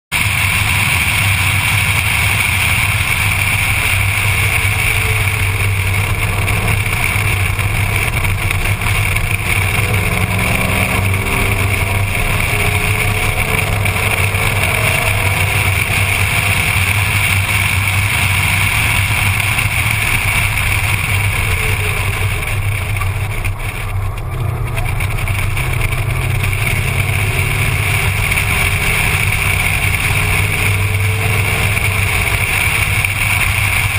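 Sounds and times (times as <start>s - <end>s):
car engine rising and falling: 0.1s - 33.9s.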